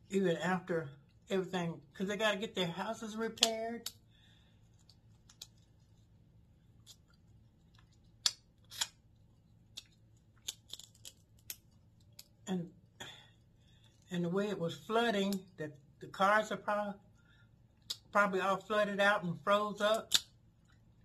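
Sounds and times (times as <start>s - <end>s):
crab shells cracking: 4.7s - 5.7s, 6.7s - 12.5s, 19.9s - 20.4s.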